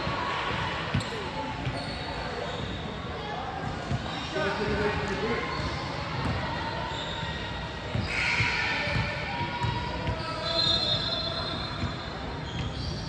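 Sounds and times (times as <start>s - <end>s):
sneakers squeaking: 0.0s - 13.0s
basketball bouncing on gym floor: 7.9s - 10.3s.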